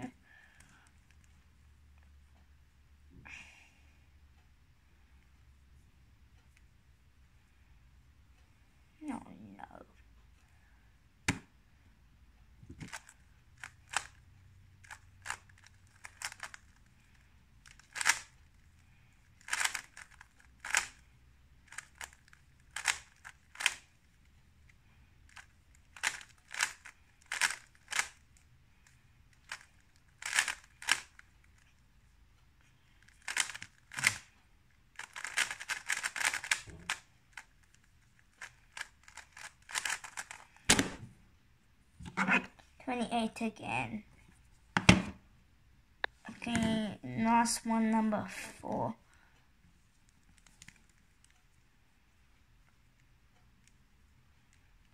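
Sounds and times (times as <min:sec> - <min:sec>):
puzzle cube plastic clacks: 0:12.7 - 0:14.2, 0:14.8 - 0:18.6, 0:19.3 - 0:24.0, 0:25.3 - 0:31.8, 0:33.0 - 0:34.3, 0:34.9 - 0:41.0.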